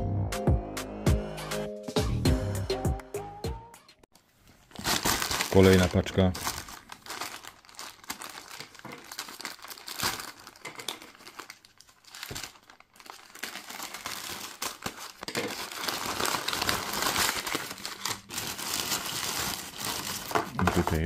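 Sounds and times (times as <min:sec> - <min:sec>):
plastic packaging crinkling: 0:04.2 - 0:21.0.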